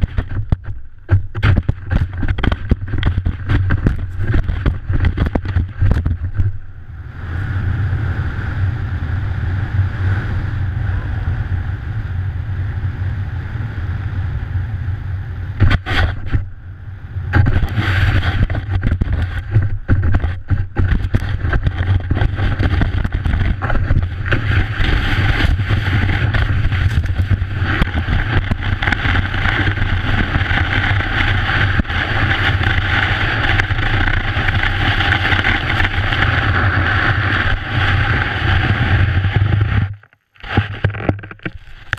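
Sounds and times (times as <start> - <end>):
wind rushing over microphone: 0.0 - 41.9
snow spray hitting camera: 15.6 - 16.4, 17.3 - 39.8
skis hissing and scraping on snow: 17.4 - 18.6, 22.1 - 39.2.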